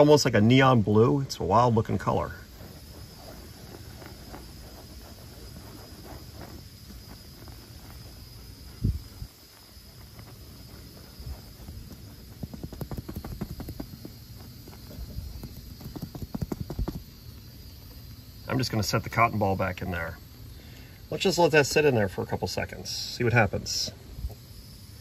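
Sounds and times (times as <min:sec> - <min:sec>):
insect chirring: 0:00.0 - 0:25.0
rubbing on vinyl cushion: 0:01.7 - 0:18.4
dull thump: 0:11.0 - 0:17.2.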